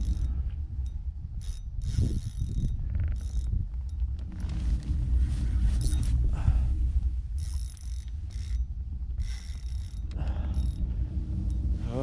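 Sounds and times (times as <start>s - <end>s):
low rumble: 0.0s - 12.0s
fishing reel drag clicking: 1.4s - 3.5s, 7.4s - 10.8s.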